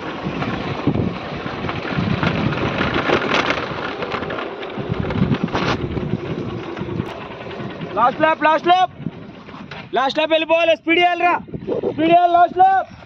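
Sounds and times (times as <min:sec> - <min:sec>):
wind buffeting microphone: 0:00.0 - 0:13.0.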